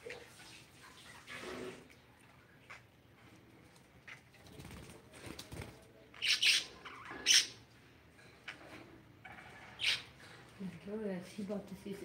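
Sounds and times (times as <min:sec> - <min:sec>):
wing flapping: 0:04.4 - 0:05.9
budgerigars chirping harshly: 0:06.2 - 0:07.6, 0:09.3 - 0:10.2.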